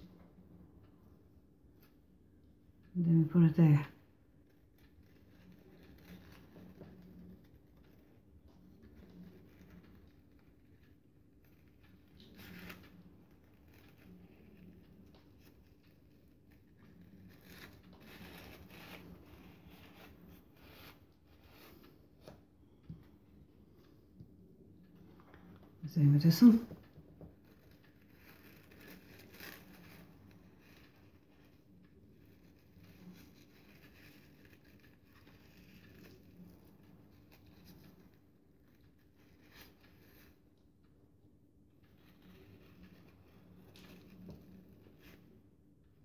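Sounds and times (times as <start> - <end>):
crepe paper rustling: 4.4 - 23.0, 26.4 - 40.6, 41.8 - 45.4.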